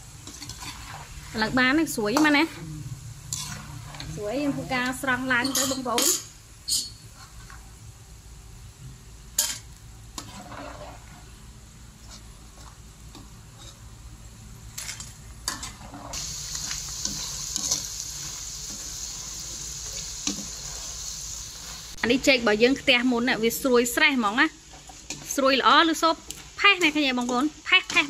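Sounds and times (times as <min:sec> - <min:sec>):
food sizzling in hot oil: 0:00.0 - 0:28.0
metal spoon clinking against pan: 0:05.4 - 0:07.0.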